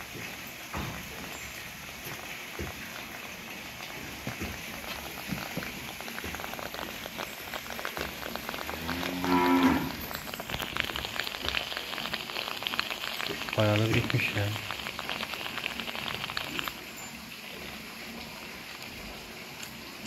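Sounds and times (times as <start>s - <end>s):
light crackling patter: 0.0s - 17.4s
cow mooing: 8.7s - 10.0s.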